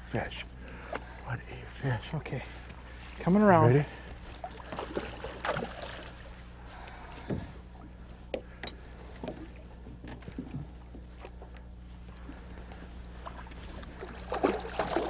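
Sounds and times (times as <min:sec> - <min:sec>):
boat motor humming: 0:00.0 - 0:15.0
faint water splashes: 0:00.2 - 0:15.0.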